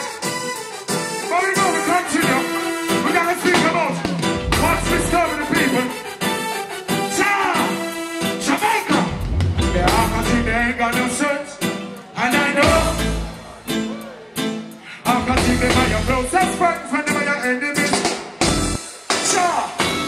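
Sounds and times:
drums: 0.0s - 5.9s, 6.9s - 20.0s
guitar: 0.0s - 20.0s
keyboards: 0.0s - 20.0s
man singing and chanting: 1.3s - 6.0s, 8.4s - 13.5s, 14.8s - 18.0s
heavy bass: 3.6s - 5.8s, 8.9s - 11.3s, 12.6s - 14.0s, 15.1s - 16.8s, 18.4s - 18.8s.

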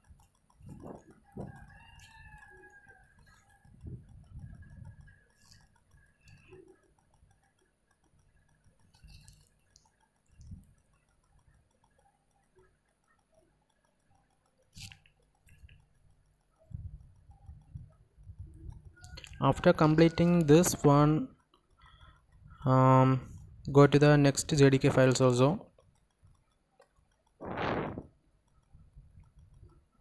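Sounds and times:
soft clicks and bumps: 0.0s - 12.0s.

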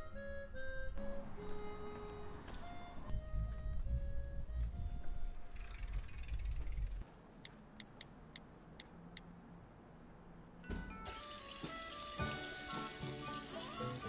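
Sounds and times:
soft music: 0.0s - 5.6s, 10.7s - 14.0s
tap running into a sink: 10.7s - 14.0s.

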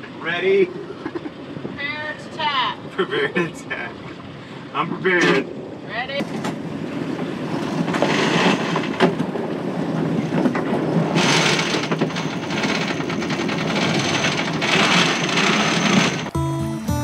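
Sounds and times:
sail rope hauled at winch: 0.0s - 16.4s
wind rushing over microphone: 5.4s - 15.8s
music: 16.3s - 17.0s.

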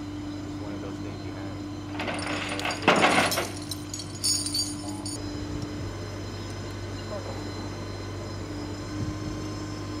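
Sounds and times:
metal chain rattling and jingling: 2.0s - 5.2s.

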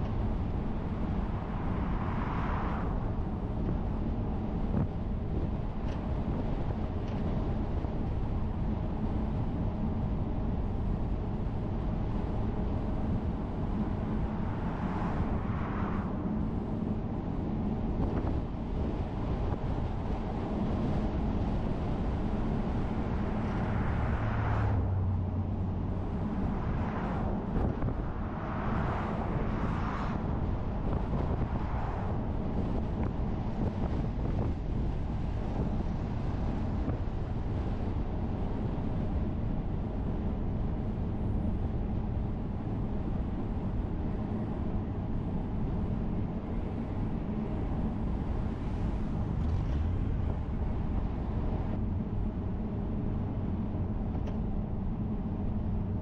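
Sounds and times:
car driving rumble: 0.0s - 56.0s
passing vehicle noise: 0.0s - 56.0s.

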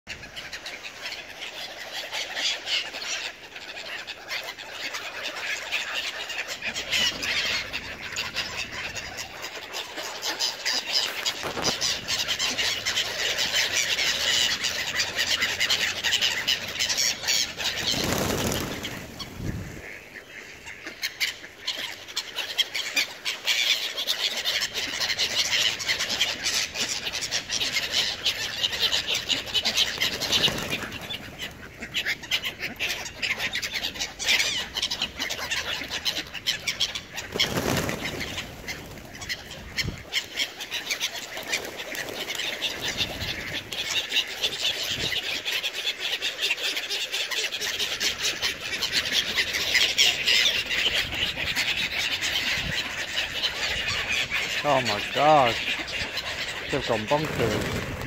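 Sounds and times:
bird calls: 0.1s - 58.0s
pigeon wings flapping: 17.6s - 19.6s, 29.6s - 31.5s, 37.2s - 39.8s, 56.8s - 58.0s.

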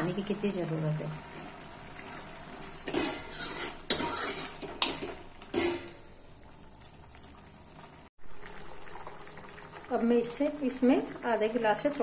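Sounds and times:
ladle stirring thick stew in metal pan: 1.3s - 6.0s
ladle scraping and knocking on pan: 2.7s - 6.0s.

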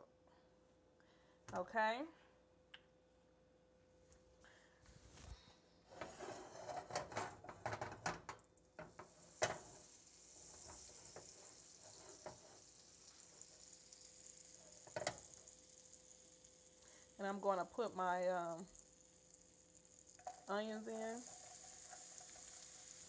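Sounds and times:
butter sizzling in a frying pan: 6.0s - 23.0s
pan and utensil clicks and knocks: 14.8s - 15.4s.

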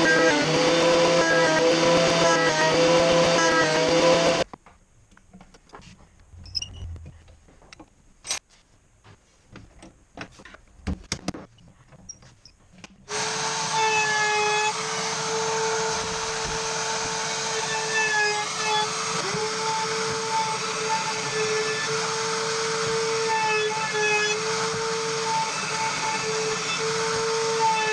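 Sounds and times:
router whining at high speed: 0.0s - 4.5s, 13.1s - 27.9s
faint clicks and knocks: 4.5s - 8.4s.

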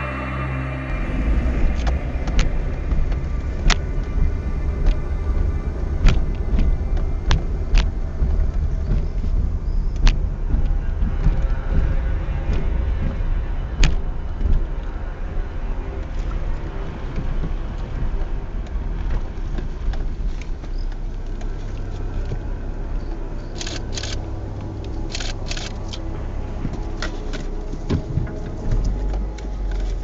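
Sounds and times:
car engine and tyre rumble: 0.0s - 30.0s
small clicks: 23.5s - 26.0s.

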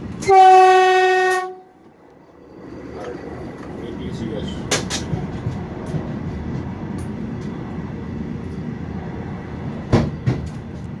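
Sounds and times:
low rumble inside train coach: 0.0s - 11.0s
sharp knock: 9.9s - 10.6s.

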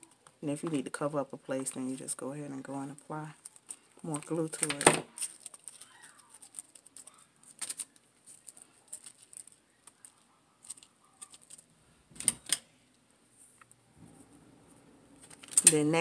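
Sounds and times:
plastic leaves rustling: 0.0s - 11.7s.

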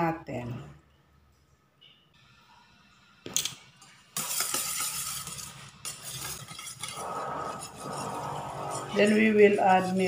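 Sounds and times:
fork beating eggs in steel bowl: 4.2s - 10.0s.

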